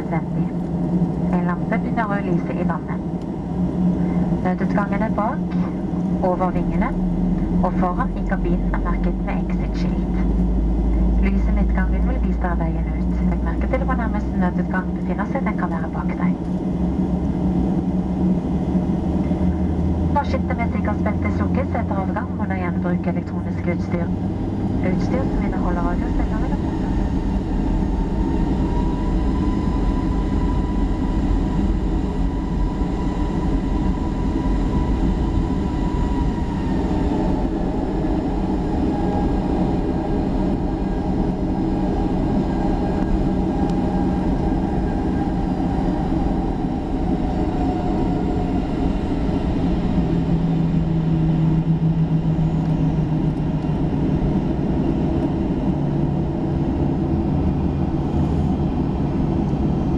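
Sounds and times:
jet engine rumble and whine: 0.0s - 59.9s.

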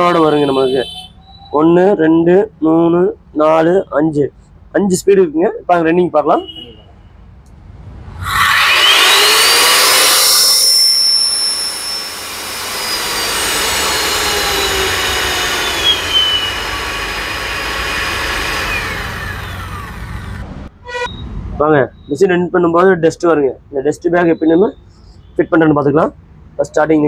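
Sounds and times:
wall sander motor whine: 8.2s - 20.5s.

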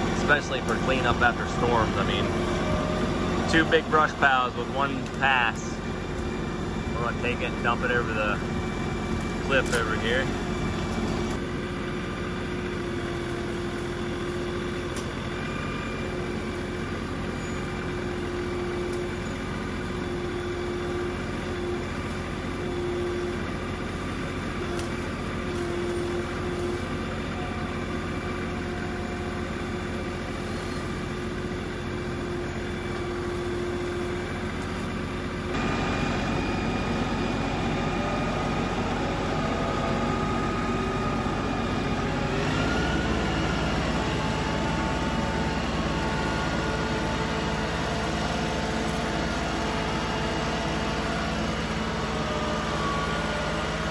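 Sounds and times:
tractor diesel engine running: 0.0s - 53.9s.

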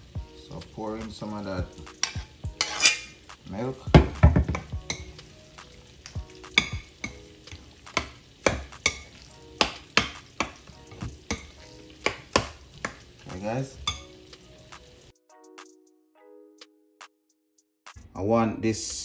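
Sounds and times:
spoon clinking against glass bowl: 13.8s - 14.1s.

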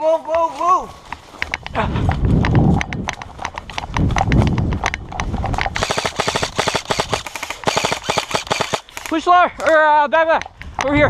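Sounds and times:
running footsteps in undergrowth: 0.0s - 10.8s
airsoft guns firing: 5.8s - 9.2s.

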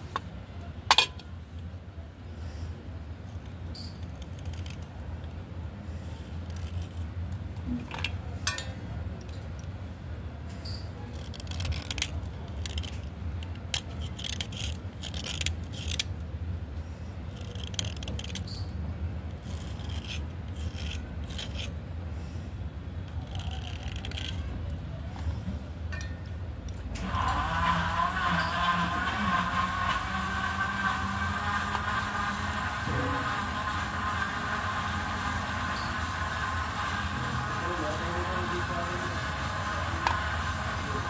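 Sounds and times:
blade scraping slate pencil: 3.4s - 5.0s, 6.0s - 7.1s, 10.7s - 16.1s, 17.3s - 18.7s, 19.3s - 21.8s, 23.1s - 24.5s.

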